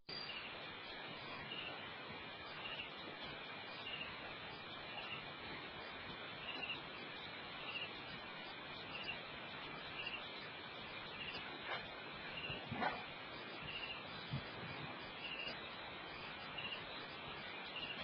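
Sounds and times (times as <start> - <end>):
steady night hiss: 0.1 - 18.0.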